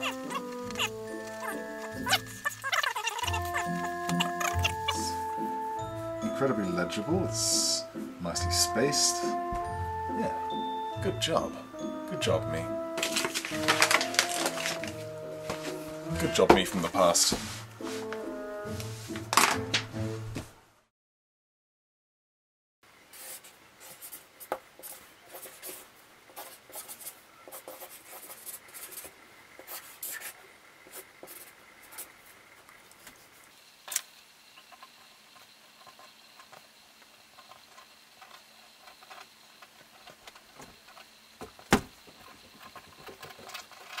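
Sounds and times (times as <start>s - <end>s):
pen scratching on paper: 0.0s - 5.1s, 24.8s - 32.1s.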